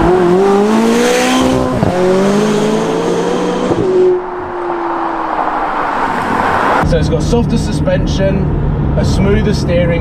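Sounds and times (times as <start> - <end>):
car engine accelerating hard: 0.0 - 10.0.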